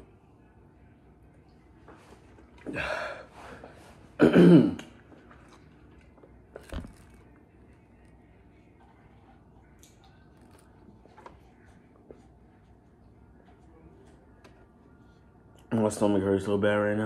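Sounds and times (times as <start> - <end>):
breathy gasp: 2.7 - 3.6.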